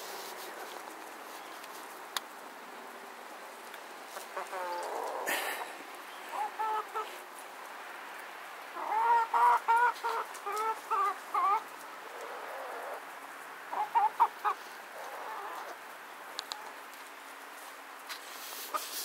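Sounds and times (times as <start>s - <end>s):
chickens clucking: 4.1s - 16.8s, 18.3s - 19.0s.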